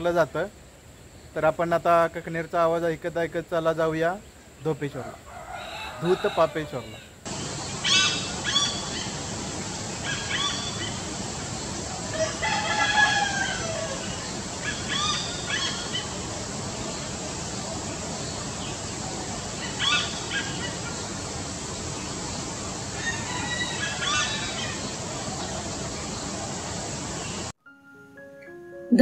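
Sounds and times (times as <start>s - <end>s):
hornbill calling: 5.0s - 27.4s
rooster crowing: 5.2s - 7.2s, 12.1s - 16.0s, 23.0s - 24.9s.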